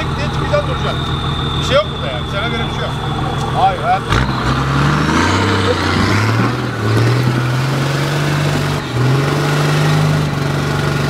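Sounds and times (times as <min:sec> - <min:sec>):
diesel truck engine under load: 0:00.0 - 0:11.0.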